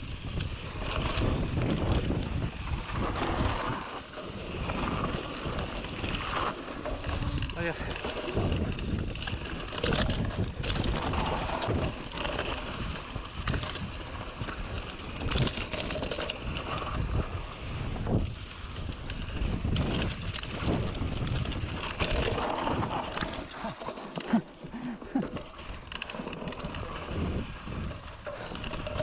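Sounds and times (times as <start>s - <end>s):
bike tyre noise on dirt: 0.0s - 29.0s
wind buffeting microphone: 0.0s - 29.0s
bike knocks and rattles: 17.9s - 24.4s.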